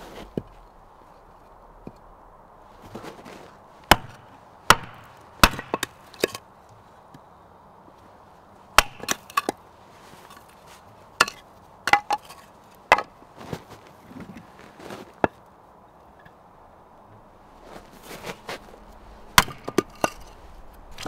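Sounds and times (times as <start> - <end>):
blade chopping wood: 3.9 - 6.4, 8.8 - 9.6, 11.2 - 13.1, 19.4 - 20.3.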